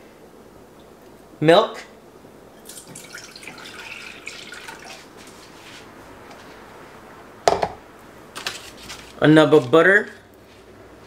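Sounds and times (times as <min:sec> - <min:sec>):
milk pouring into saucepan: 0:02.6 - 0:05.4.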